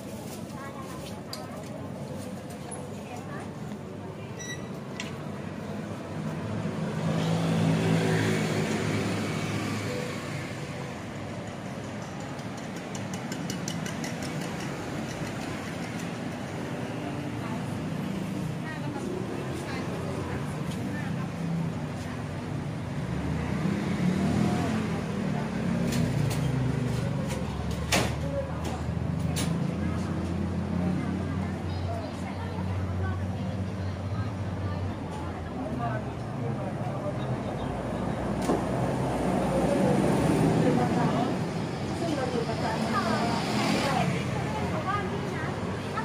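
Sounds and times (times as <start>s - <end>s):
city traffic hum: 0.0s - 46.0s
vehicle passing: 6.2s - 10.8s.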